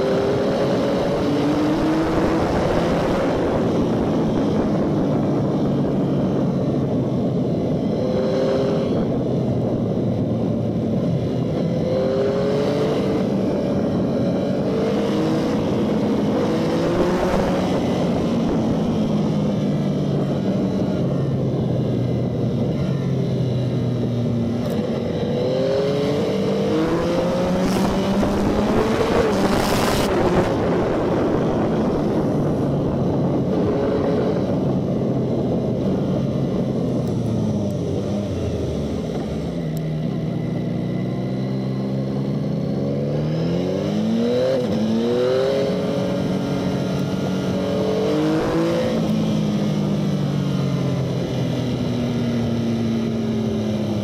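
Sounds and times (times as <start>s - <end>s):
motorcycle engine revving: 0.0s - 54.0s
wind and road noise: 0.0s - 54.0s.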